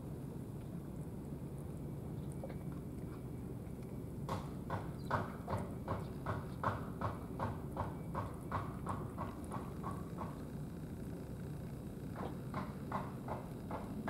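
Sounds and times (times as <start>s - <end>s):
cat chewing with wet smacking: 0.6s - 4.7s, 8.2s - 10.6s.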